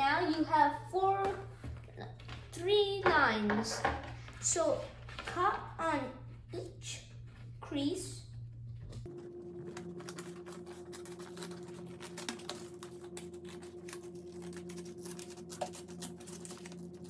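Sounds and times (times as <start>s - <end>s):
low hum: 5.0s - 17.0s
scissors snipping paper: 9.6s - 17.0s.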